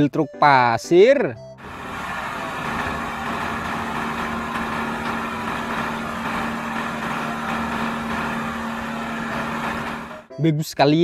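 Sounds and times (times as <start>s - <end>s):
diesel truck engine running: 1.6s - 10.3s.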